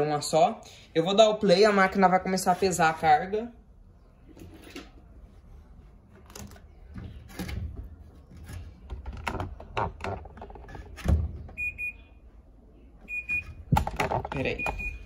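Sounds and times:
laundry knocks and clunks: 13.6s - 15.0s.

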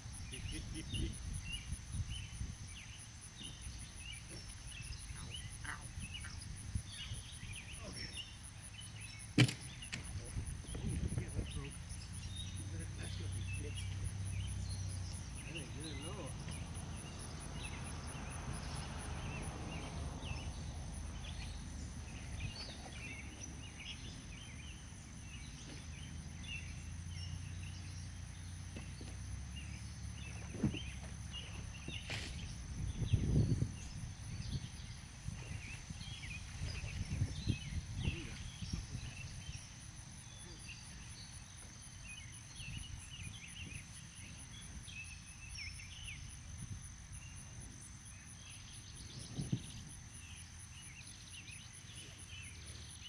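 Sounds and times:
high pulsing insect trill: 0.0s - 53.0s
insects chirping: 0.0s - 53.0s
dull thumps: 9.4s - 11.0s.

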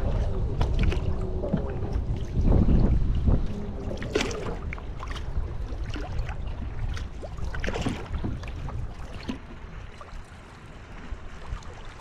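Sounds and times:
water lapping at hull: 0.0s - 12.0s
wind rumble on microphone: 0.0s - 12.0s
paddle strokes splashing: 3.2s - 12.0s.

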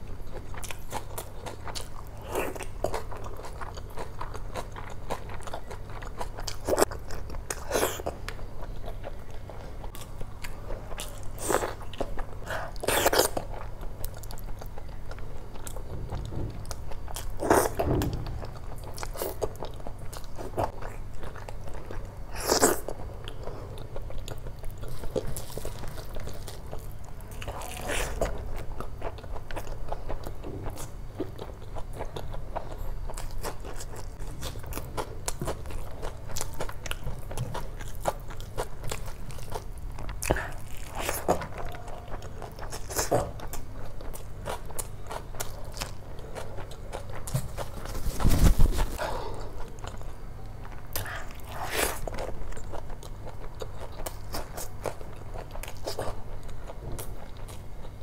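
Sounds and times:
person chewing: 0.3s - 58.0s.

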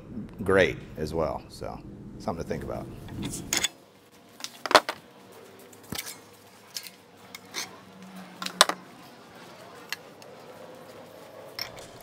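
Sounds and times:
metallic clinks and knocks: 11.5s - 12.0s.

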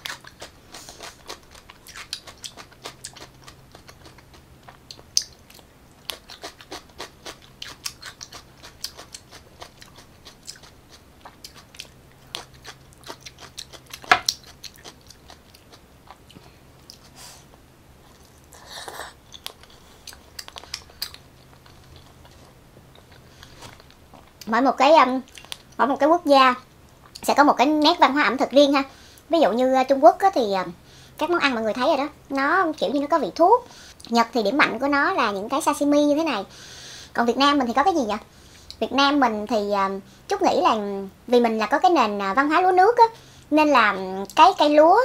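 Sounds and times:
person chewing: 0.0s - 17.4s, 18.0s - 24.5s, 25.3s - 25.8s.

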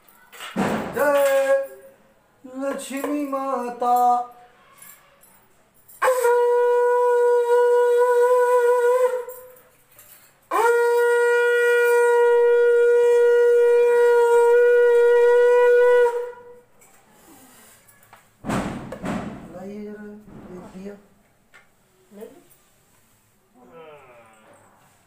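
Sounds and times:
conch shell blasts: 6.0s - 9.6s, 10.5s - 16.6s.

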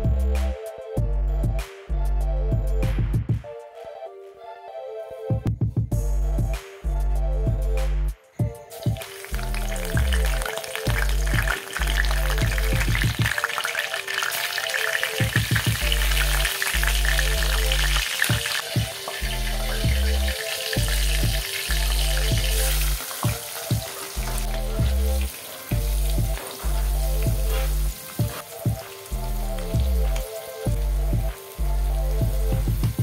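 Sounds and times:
background music with bass line: 0.0s - 13.7s, 14.5s - 33.0s
hot oil sizzling and crackling: 8.6s - 33.0s.

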